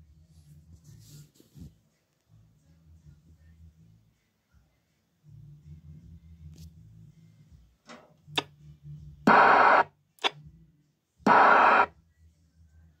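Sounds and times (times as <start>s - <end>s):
radio static bursts: 9.3s - 9.9s, 11.3s - 11.9s.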